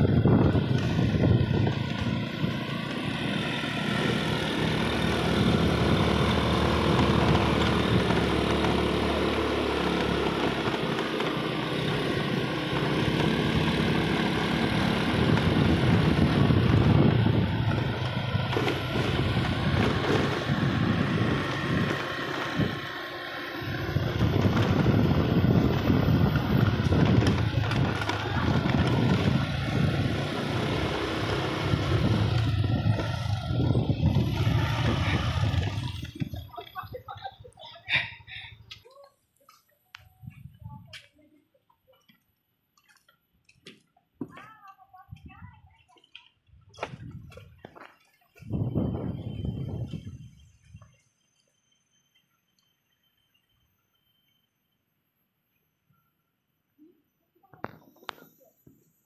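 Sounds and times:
motor scooter engine running: 0.0 - 38.8, 46.7 - 50.5.

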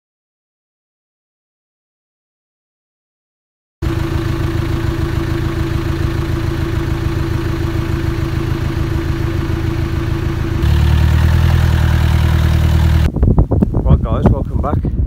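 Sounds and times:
car engine running: 3.8 - 13.1.

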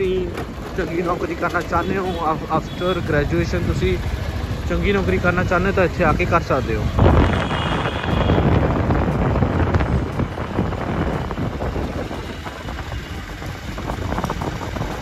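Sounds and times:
vehicle rumble and road noise: 0.0 - 15.0
wind buffeting microphone: 1.8 - 15.0.

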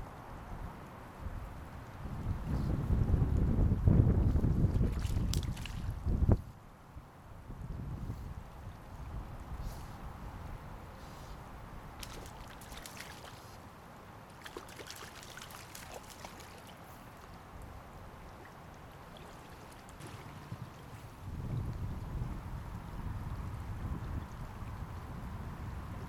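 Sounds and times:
wind buffeting microphone: 0.0 - 6.6, 7.4 - 12.9, 20.0 - 26.0
flowing water: 0.0 - 26.0
fish splashing at water surface: 12.0 - 13.6, 14.4 - 17.1.

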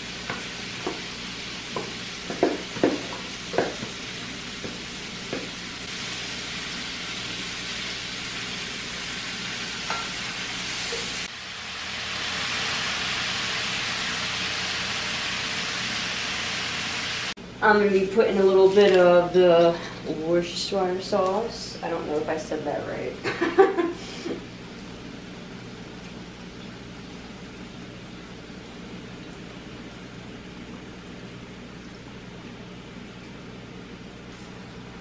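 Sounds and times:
vegetables and meat sizzling in skillet: 0.0 - 20.0.

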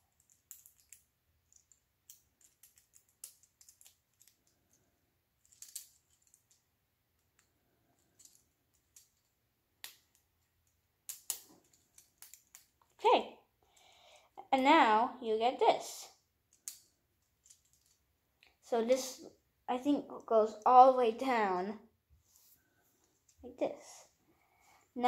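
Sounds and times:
plastic bricks clicking together: 0.1 - 4.5, 5.4 - 6.6, 8.2 - 12.8, 16.5 - 18.0.

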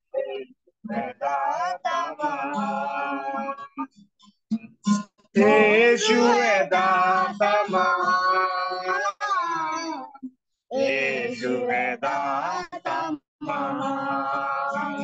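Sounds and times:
person singing: 0.9 - 3.8, 5.4 - 15.0
strummed acoustic guitar: 2.2 - 8.7, 11.0 - 15.0.

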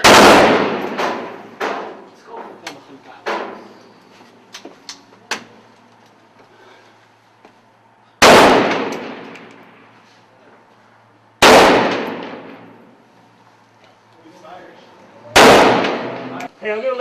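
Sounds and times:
rifle shots echoing: 0.0 - 2.0, 8.2 - 9.9, 11.4 - 12.9, 15.4 - 16.4.

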